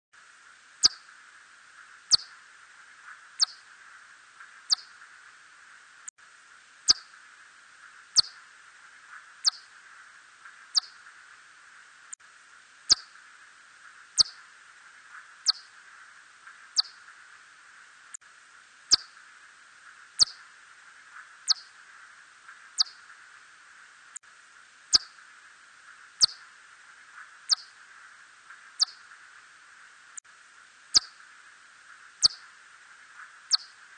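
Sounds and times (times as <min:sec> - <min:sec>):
faint steady hiss: 0:00.2 - 0:33.9
bat chirps: 0:00.8 - 0:01.1, 0:02.1 - 0:02.4, 0:03.4 - 0:03.7, 0:04.7 - 0:05.0, 0:06.9 - 0:07.1, 0:08.2 - 0:08.4, 0:09.4 - 0:09.7, 0:10.7 - 0:11.0, 0:12.9 - 0:13.2, 0:14.2 - 0:14.4, 0:15.4 - 0:15.7, 0:16.7 - 0:17.1, 0:18.9 - 0:19.2, 0:20.2 - 0:20.5, 0:21.4 - 0:21.7, 0:22.8 - 0:23.1, 0:24.9 - 0:25.2, 0:26.2 - 0:26.5, 0:27.2 - 0:27.8, 0:28.8 - 0:29.1, 0:30.9 - 0:31.2, 0:32.2 - 0:32.6, 0:33.2 - 0:33.8.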